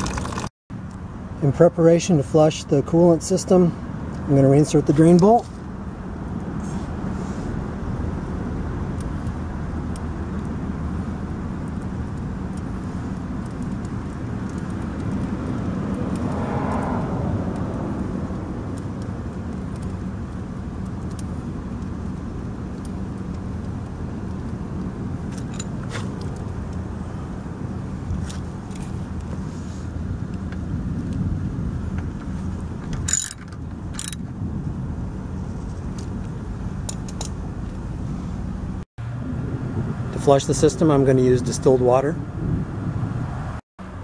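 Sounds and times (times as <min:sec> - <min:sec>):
vehicle passing: 0:13.8 - 0:20.7.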